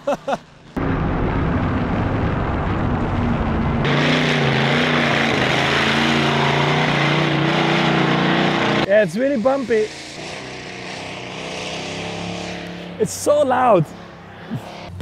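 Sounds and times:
man laughing: 0:00.0 - 0:00.4.

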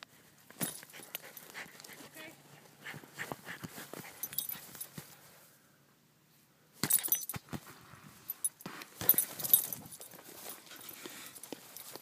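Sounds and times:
collar jingling: 0:00.6 - 0:02.1, 0:04.0 - 0:05.0, 0:06.9 - 0:07.4, 0:08.3 - 0:12.0
dog scuffling with ball on grass: 0:02.8 - 0:05.2, 0:08.6 - 0:12.0.

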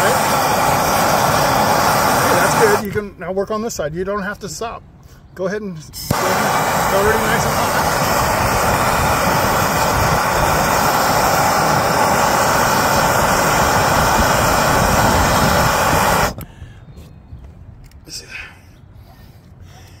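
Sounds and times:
gas torch hissing: 0:00.0 - 0:02.9, 0:06.0 - 0:16.4.

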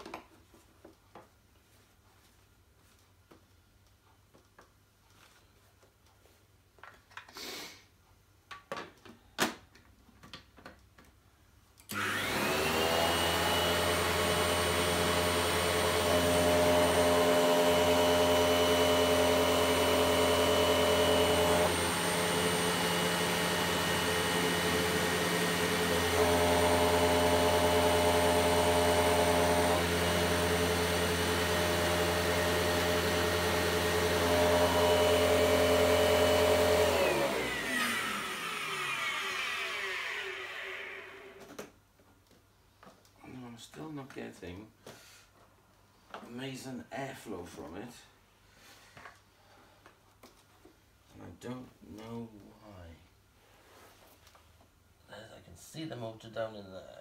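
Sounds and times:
vacuum cleaner running: 0:11.9 - 0:41.6.

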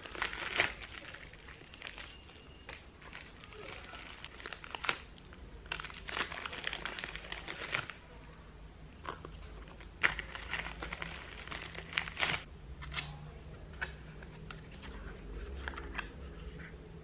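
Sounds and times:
packaging crinkling: 0:00.0 - 0:08.0, 0:09.6 - 0:12.5.

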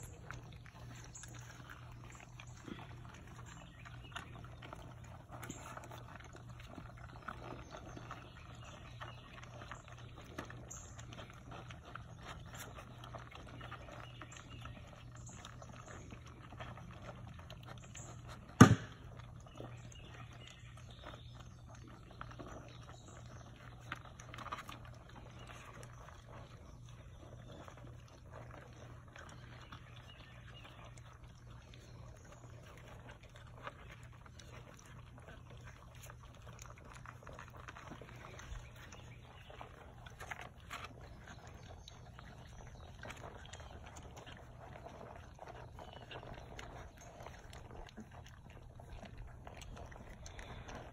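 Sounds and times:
puppies crunching dry kibble: 0:00.0 - 0:50.9
sharp knock: 0:18.6 - 0:18.9.

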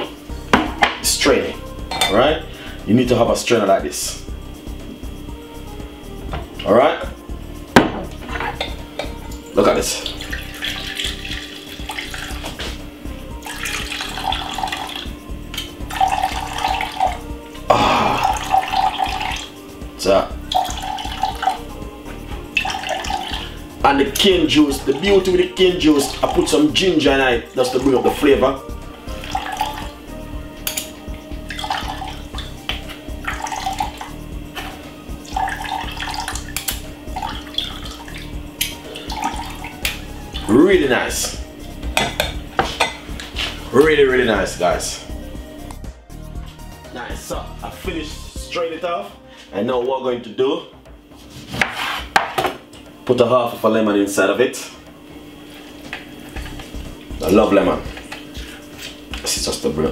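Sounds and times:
juice trickling into jug: 0:09.6 - 0:12.8, 0:13.4 - 0:19.6, 0:20.4 - 0:21.7, 0:22.5 - 0:26.6, 0:29.1 - 0:30.0, 0:31.5 - 0:40.6
liquid splashing: 0:09.9 - 0:12.8, 0:33.2 - 0:40.5.

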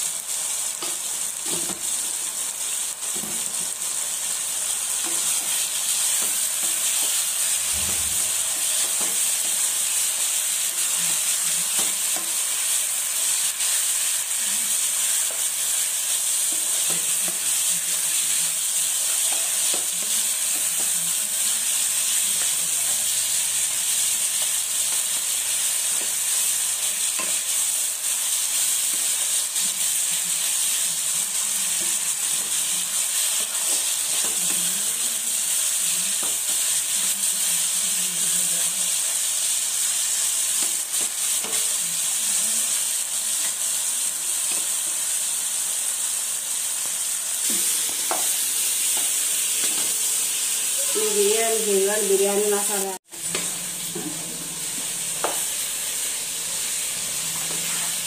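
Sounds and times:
chicken sizzling in hot oil: 0:00.0 - 0:58.0
wooden spatula scraping pan: 0:53.2 - 0:58.0.

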